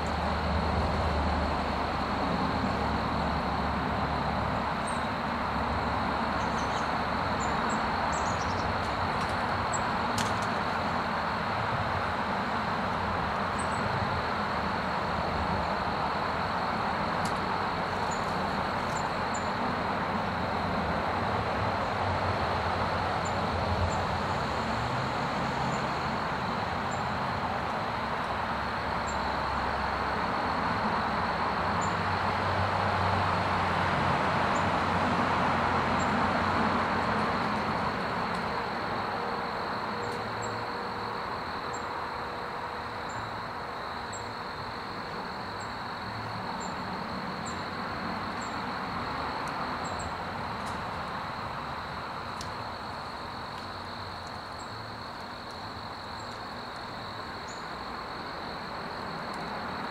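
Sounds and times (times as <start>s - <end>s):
distant road traffic: 0.0s - 59.9s
high insect drone: 0.0s - 59.9s
faint high ticks: 49.4s - 50.9s, 52.3s - 54.4s, 55.1s - 56.9s.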